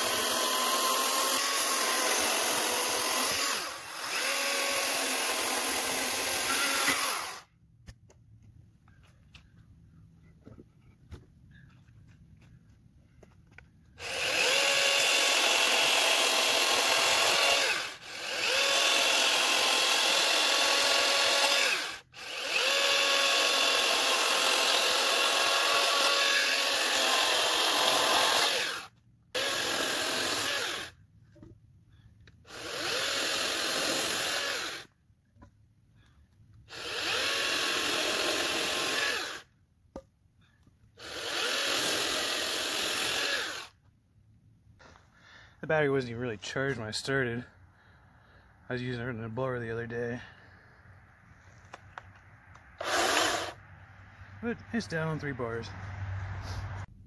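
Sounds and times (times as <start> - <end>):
electric chainsaw cutting logs: 0.0 - 7.5, 14.0 - 31.0, 32.4 - 35.0, 36.6 - 39.6, 41.0 - 43.8, 51.7 - 53.6.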